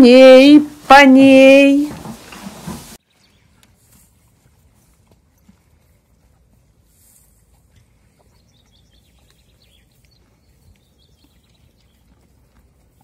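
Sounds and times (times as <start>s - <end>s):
horses chewing branches: 1.9s - 13.0s
small birds chirping: 7.6s - 13.0s.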